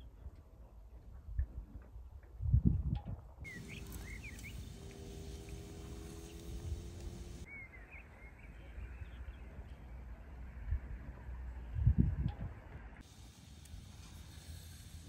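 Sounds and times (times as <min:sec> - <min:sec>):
faint steady hum: 0:03.5 - 0:07.5
low background rumble: 0:03.5 - 0:07.5
small birds chirping: 0:03.5 - 0:09.9.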